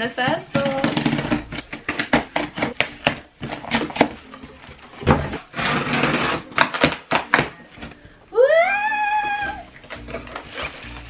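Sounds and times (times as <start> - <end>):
scissors snipping cardboard: 0.2 - 4.2, 5.5 - 7.6
cardboard scraping and tearing: 0.5 - 4.3, 5.0 - 7.5, 9.8 - 11.0.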